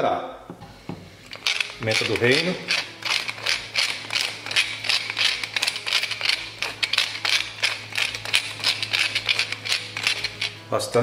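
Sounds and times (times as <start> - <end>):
pepper mill grinding: 1.2 - 11.0.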